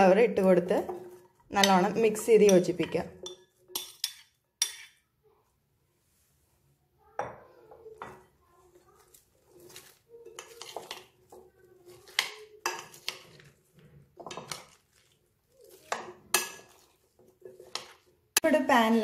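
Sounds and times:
metal spoon scraping a bowl: 0.6s - 5.1s, 8.7s - 18.5s.

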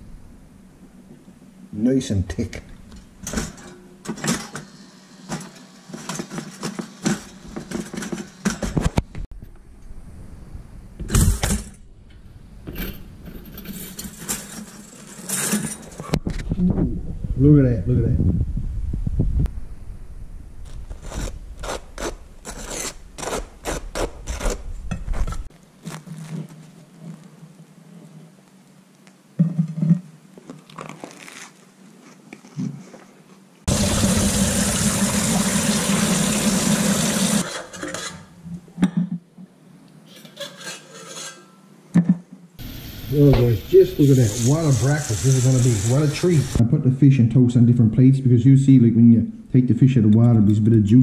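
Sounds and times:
low steady hum: 0.0s - 4.6s.

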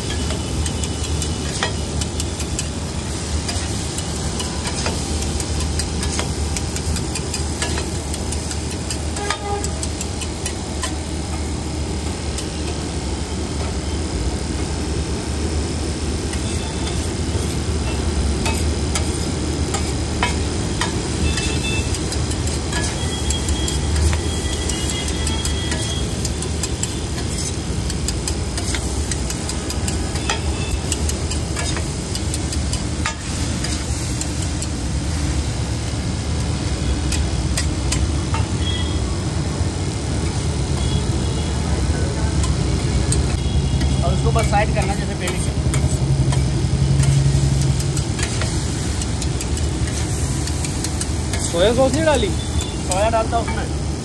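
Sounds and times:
food sizzling on griddle: 0.0s - 54.0s
spatula scraping metal griddle: 0.1s - 11.0s, 16.3s - 34.7s, 42.5s - 52.1s.

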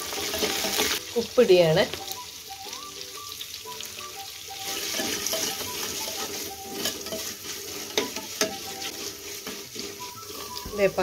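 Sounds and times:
spices sizzling in oil: 0.0s - 11.0s
metal spoon stirring: 0.1s - 1.0s, 4.6s - 10.7s.

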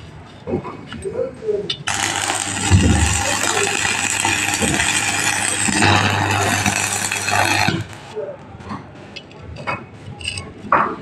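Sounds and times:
low transformer hum: 1.9s - 8.2s
welding arc crackling and hissing: 1.9s - 8.2s.

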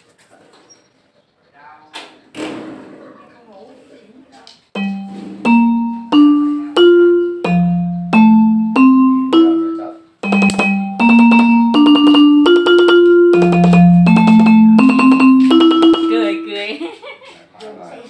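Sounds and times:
electronic pad marimba notes: 4.8s - 16.8s.

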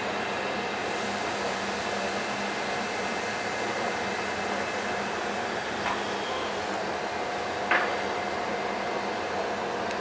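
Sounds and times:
locomotive equipment whirring: 3.6s - 8.7s.

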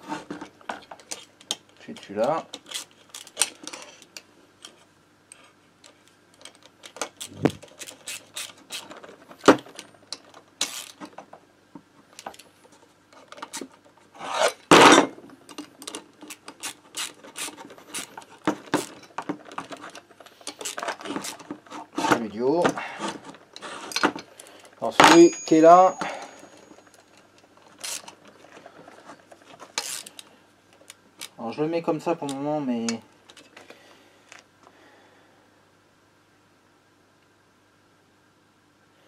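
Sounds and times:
socket wrench clicks and scrapes: 2.5s - 4.2s, 5.8s - 9.0s, 10.6s - 11.1s, 15.5s - 19.1s, 20.4s - 21.4s, 25.8s - 28.2s, 29.6s - 30.2s.

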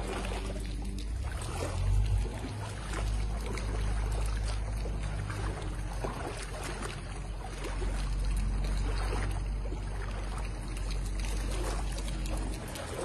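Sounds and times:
low rumble: 0.0s - 13.0s
water washing over muddy ground: 0.0s - 13.0s.

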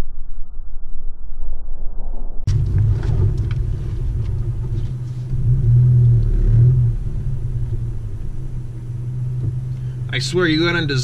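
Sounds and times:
car engine and road rumble: 2.5s - 11.0s.

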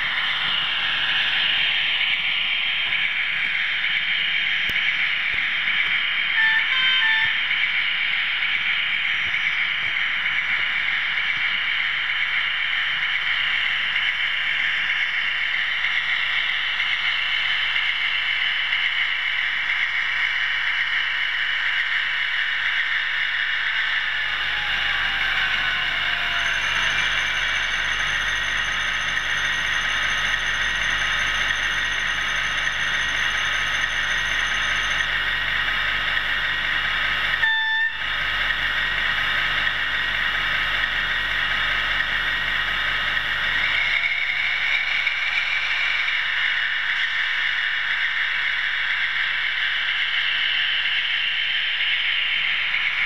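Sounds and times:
model train whirring: 0.0s - 53.0s
brief high tone: 37.4s - 38.0s.

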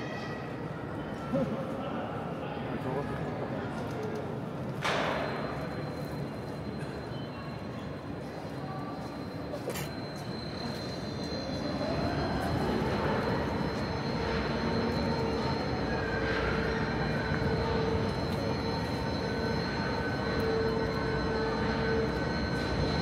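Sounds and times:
crane running noise: 2.8s - 23.0s
electric crane drive whine: 10.0s - 23.0s.

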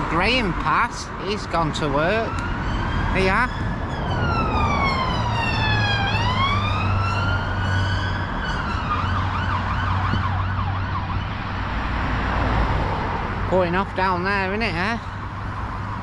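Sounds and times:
road traffic hum: 0.0s - 16.0s
police siren wailing and yelping: 1.8s - 11.6s.

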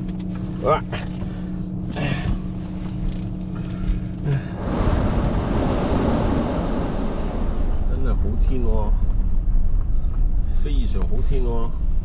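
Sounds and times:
engine humming: 0.0s - 12.0s
loud rushing noise: 4.5s - 9.7s.

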